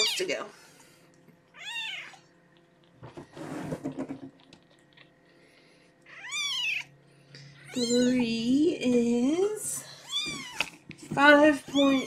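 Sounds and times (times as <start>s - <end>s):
kitten crying: 1.5s - 2.3s, 6.1s - 6.9s, 7.7s - 8.2s, 10.0s - 10.7s.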